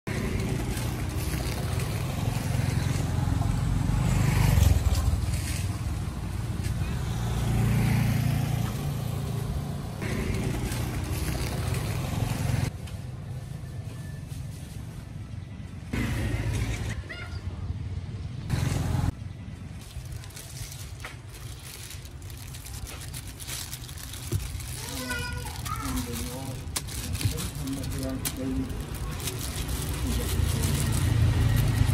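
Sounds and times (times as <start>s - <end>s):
passing road vehicles rumbling: 0.1s - 31.9s.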